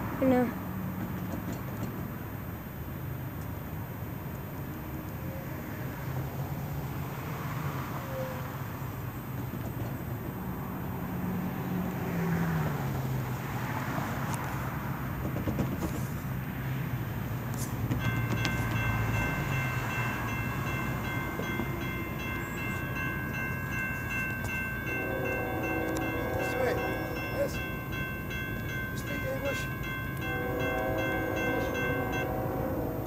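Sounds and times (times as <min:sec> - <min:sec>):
railroad crossing bell ringing: 0:10.0 - 0:33.0.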